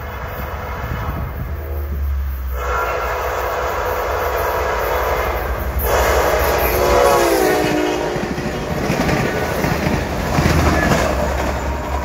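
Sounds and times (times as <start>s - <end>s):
train horn blowing: 0.0s - 9.6s
low rumble of passing train: 0.0s - 12.0s.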